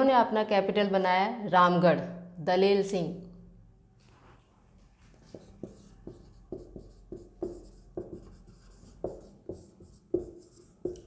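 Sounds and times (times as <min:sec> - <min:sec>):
marker writing on whiteboard: 0:04.2 - 0:11.0.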